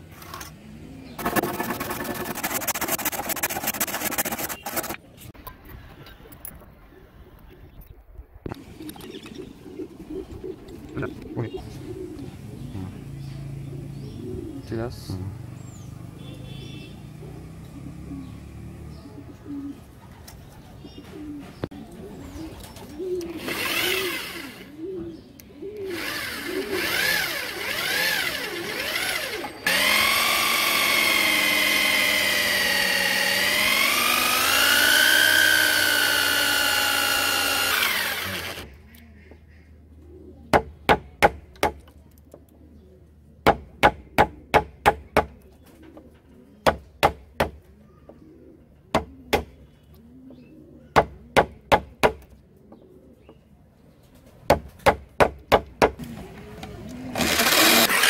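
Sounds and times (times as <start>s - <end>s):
electric drill boring into wood: 1.2s - 5.0s, 23.4s - 24.7s, 25.9s - 38.7s, 57.1s - 58.0s.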